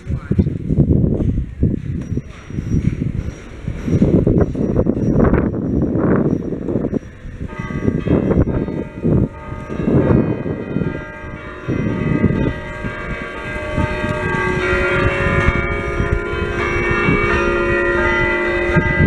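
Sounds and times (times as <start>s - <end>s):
wind rumbling on microphone: 0.0s - 19.0s
church bells ringing: 1.8s - 19.0s.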